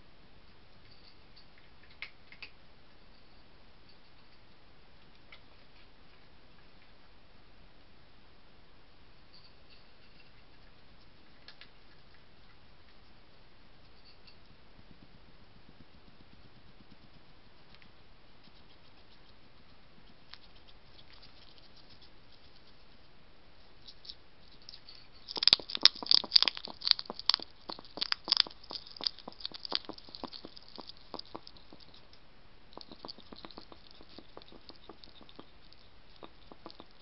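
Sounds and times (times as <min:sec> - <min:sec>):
hedgehog scratchy clicks: 0:14.9 - 0:23.1, 0:23.8 - 0:37.0.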